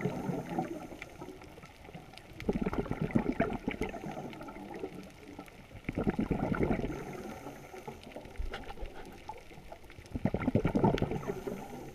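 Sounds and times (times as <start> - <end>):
underwater breath bubbling: 0.0 - 1.5, 2.4 - 5.1, 5.8 - 11.9.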